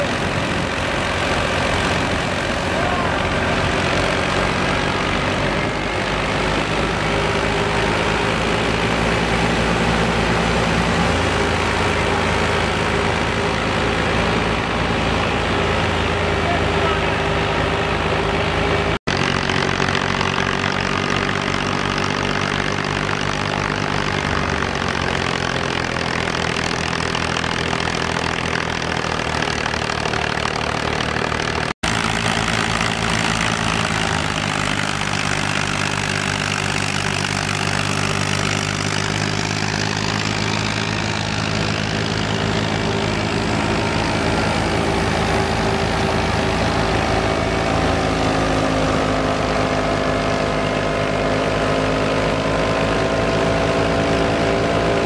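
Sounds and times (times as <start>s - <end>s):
tractor diesel engine running: 0.0s - 55.0s
thresher whirring: 19.1s - 50.4s.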